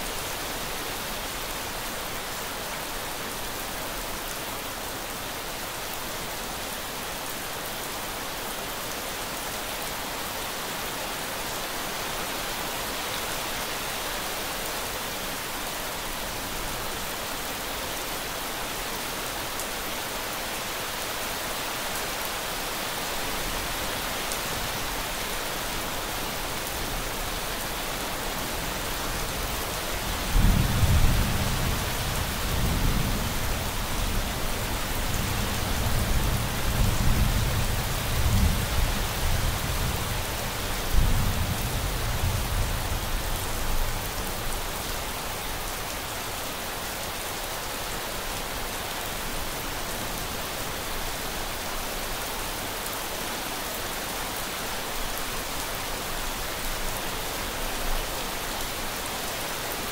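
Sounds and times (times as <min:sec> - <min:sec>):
steady rain hiss: 0:00.0 - 0:59.9.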